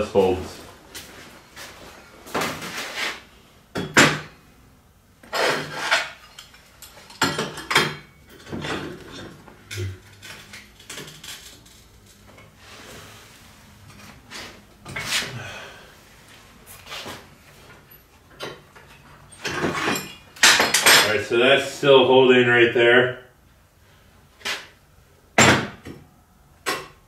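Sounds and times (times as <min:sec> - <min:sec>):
steel clanking and scraping on table: 0:05.3 - 0:11.4, 0:19.3 - 0:21.1.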